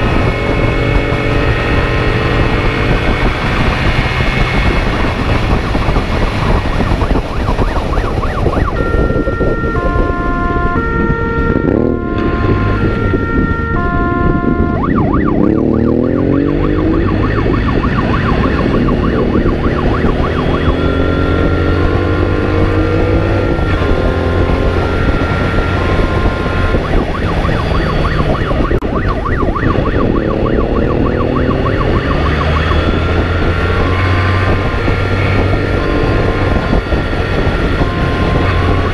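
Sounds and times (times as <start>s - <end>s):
motorcycle engine revving: 0.0s - 38.9s
police siren alternating tones: 0.0s - 38.9s.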